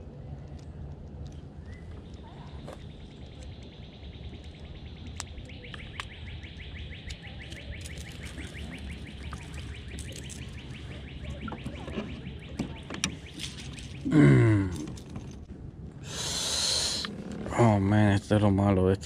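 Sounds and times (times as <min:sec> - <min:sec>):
low outdoor rumble: 0:00.0 - 0:19.0
sharp clicks: 0:02.8 - 0:14.1.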